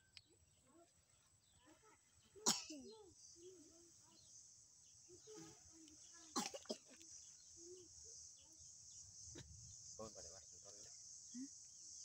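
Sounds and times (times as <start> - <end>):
high-pitched insect drone: 3.1 - 12.0.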